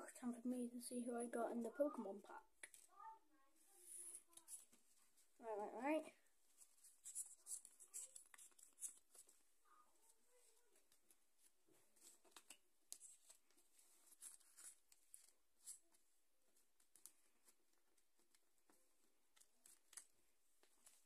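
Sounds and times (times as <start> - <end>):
cards clicking and rustling: 7.0 - 9.4, 11.9 - 15.9, 16.8 - 21.0.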